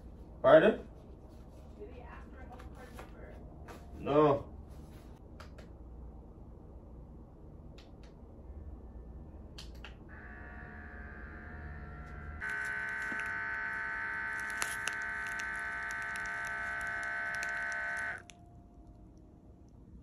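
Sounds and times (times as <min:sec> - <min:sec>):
small pump motor buzzing: 0:10.1 - 0:18.2.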